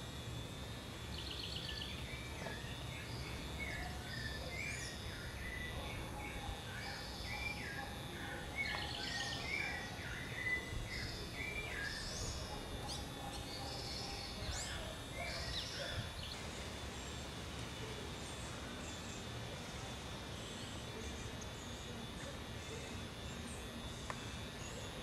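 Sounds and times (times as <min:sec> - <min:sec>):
low background noise: 0:00.0 - 0:25.0
birds chirping and whistling: 0:01.1 - 0:16.4.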